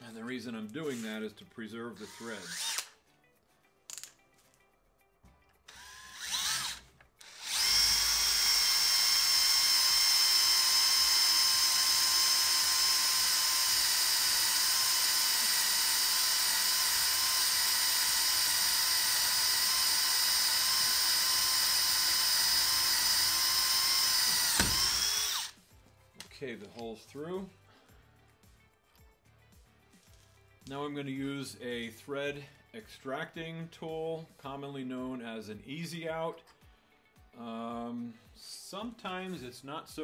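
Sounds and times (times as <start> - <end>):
power drill whining: 2.0 - 3.0, 5.7 - 25.6.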